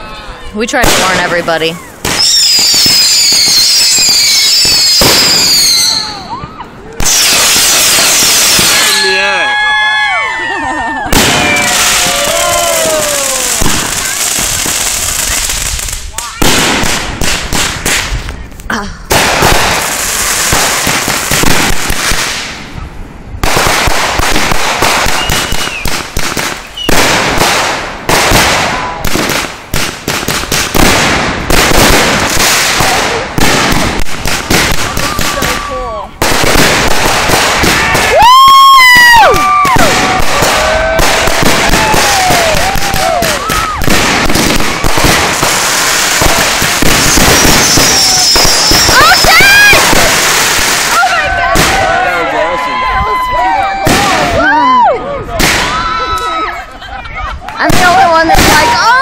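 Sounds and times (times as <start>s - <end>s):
fireworks hissing rush of sparks: 0.6s - 6.2s, 7.0s - 9.1s, 11.1s - 22.8s, 39.1s - 51.8s
fireworks rapid crackling: 0.6s - 9.3s, 11.0s - 22.8s, 23.4s - 52.0s, 57.4s - 59.0s.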